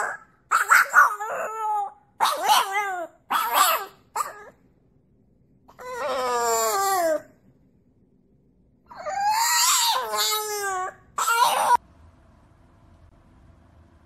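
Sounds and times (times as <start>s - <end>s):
puppy howling and yowling: 0.0s - 4.6s, 5.7s - 7.3s, 8.9s - 11.8s.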